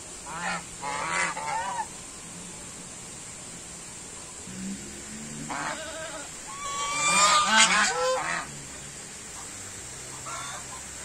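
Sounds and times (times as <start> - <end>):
geese honking: 0.3 - 1.9, 5.4 - 8.5, 10.1 - 10.9.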